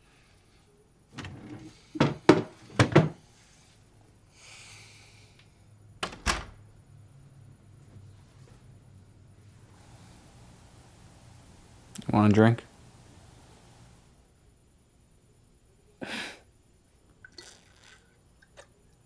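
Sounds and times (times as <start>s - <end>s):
door clicks and knocks: 6.0s - 6.6s
soft rustle: 7.8s - 8.7s.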